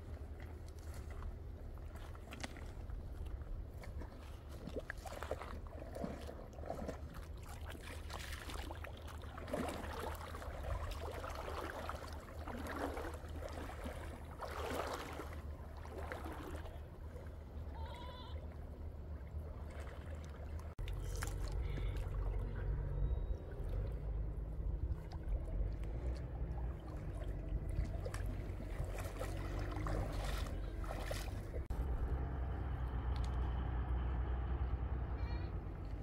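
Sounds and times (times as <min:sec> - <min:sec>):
water splashing around legs: 0:00.0 - 0:17.4, 0:19.3 - 0:32.0
low rumble: 0:15.1 - 0:36.0
warbling bleat-like call: 0:17.8 - 0:18.4.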